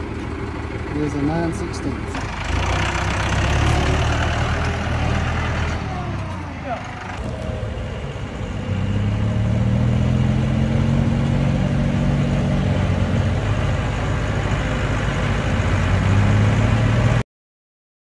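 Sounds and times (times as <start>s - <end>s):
tractor diesel engine running: 0.0s - 17.2s.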